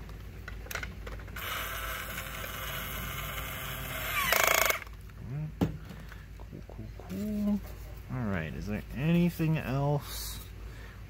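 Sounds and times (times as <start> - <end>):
toy drill whirring: 1.4 - 4.9.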